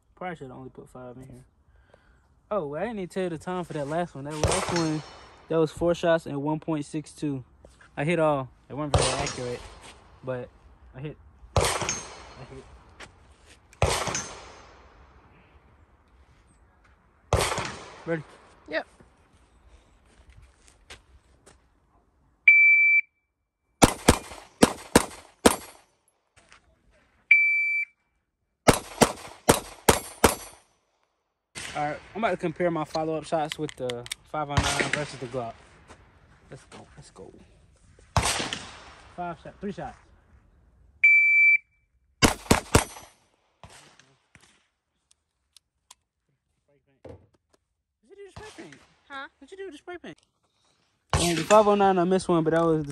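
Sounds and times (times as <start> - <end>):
pistol shots: 4.3 - 5.4, 11.6 - 12.4, 13.8 - 14.8, 17.3 - 18.1, 23.8 - 25.8, 28.7 - 30.6, 38.2 - 39.1, 42.2 - 44.0
shot timer beep: 22.5 - 23.1, 27.3 - 27.9, 41.0 - 41.7.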